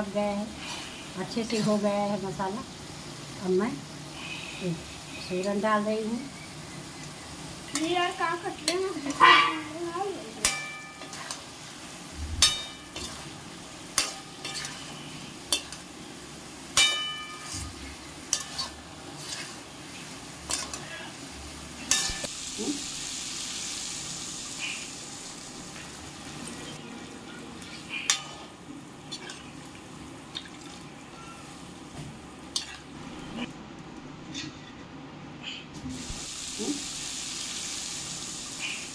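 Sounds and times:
water hissing in hot pan: 0:00.0 - 0:26.8, 0:35.9 - 0:38.9
low sizzle of frying: 0:00.0 - 0:38.9.

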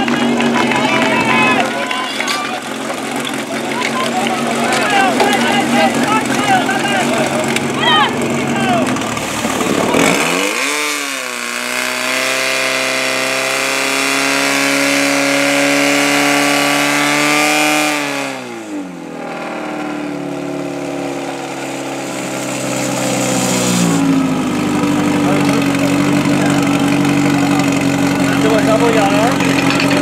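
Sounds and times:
pump petrol engine revving: 0:00.0 - 0:30.0.

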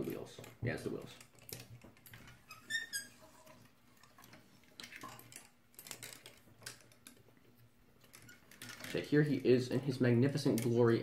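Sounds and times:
plastic toy joints clicking: 0:01.1 - 0:03.1.

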